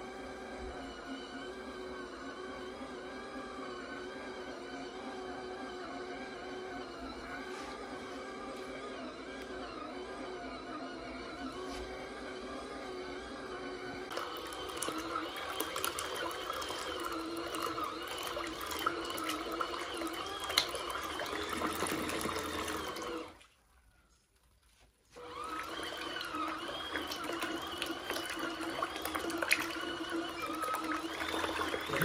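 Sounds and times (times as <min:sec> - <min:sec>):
faint motor hum: 0:00.0 - 0:24.2, 0:25.1 - 0:32.0.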